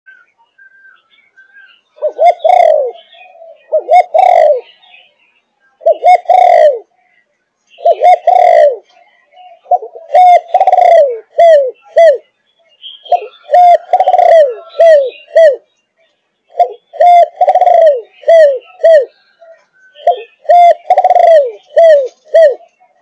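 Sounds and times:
dove cooing: 1.5s - 5.1s, 5.8s - 12.3s, 13.0s - 15.7s, 16.5s - 23.0s.

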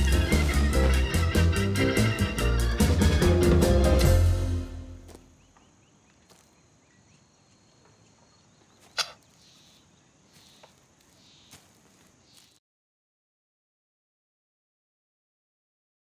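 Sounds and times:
faint bird chirps: 5.3s - 12.6s
footsteps in leaf litter: 9.3s - 12.6s.

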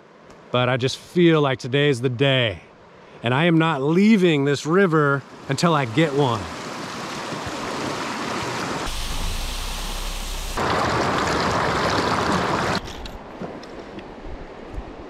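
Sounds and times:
water rushing over rocks: 5.2s - 13.1s.

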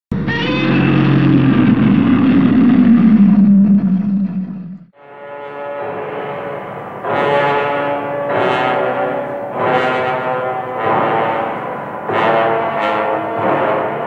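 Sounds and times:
monster roar: 0.1s - 4.9s
brass-led orchestral music: 5.0s - 14.0s.

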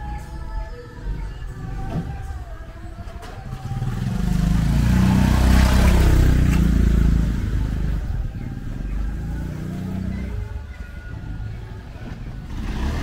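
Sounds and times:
motorcycle passing by: 3.5s - 10.8s, 11.7s - 13.0s.

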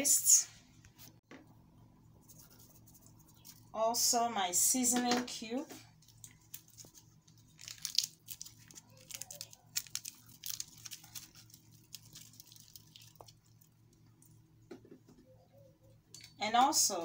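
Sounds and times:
wrapper crinkling and cube crumbling: 5.9s - 13.8s.

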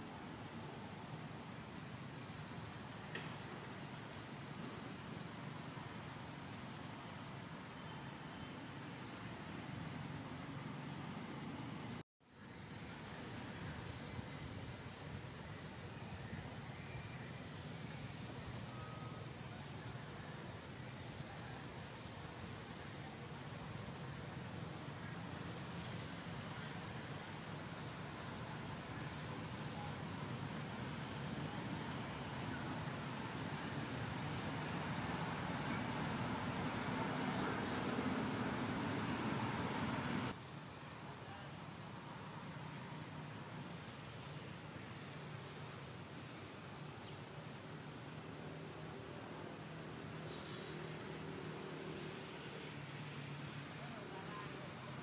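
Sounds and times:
background hiss: 0.0s - 55.0s
insects chorus: 0.0s - 55.0s.

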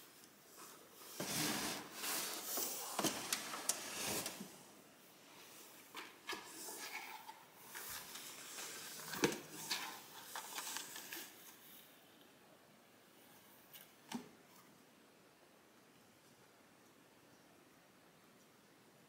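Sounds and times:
rustling and scraping: 0.5s - 11.9s.

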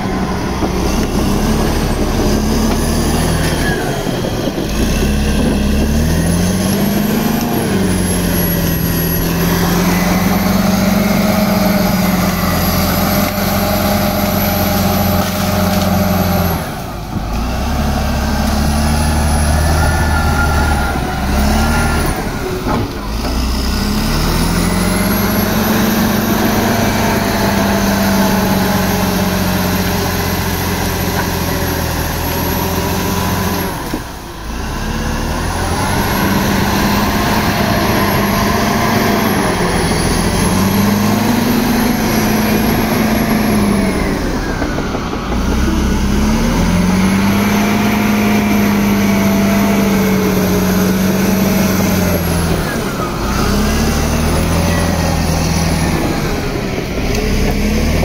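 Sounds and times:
diesel engine revving under load: 0.0s - 58.0s.

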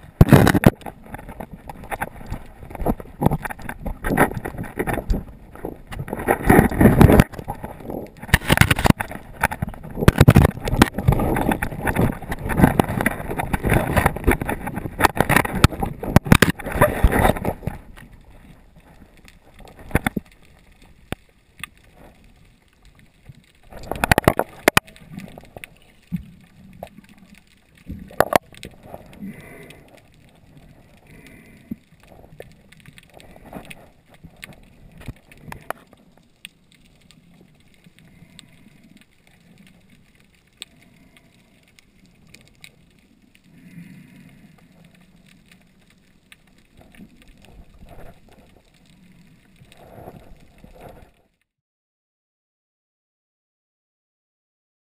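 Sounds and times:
underwater knocking and rushing: 0.0s - 51.4s.

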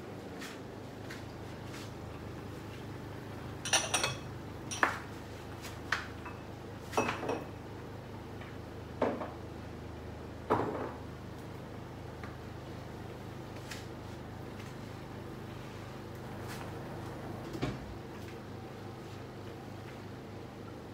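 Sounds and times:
steady low hum: 0.0s - 20.9s
metal pots and lids clinking: 3.6s - 4.8s.

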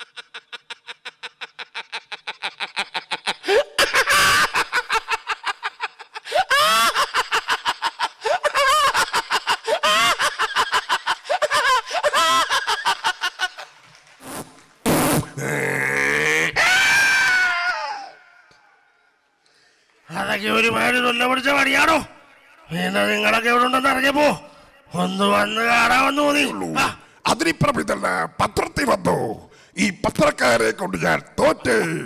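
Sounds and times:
man laughing into a microphone: 0.0s - 13.7s.

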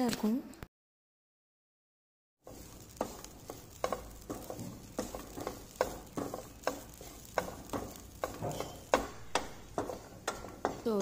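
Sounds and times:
low sizzle: 2.4s - 11.0s
spatula scraping a pan: 2.4s - 11.0s.

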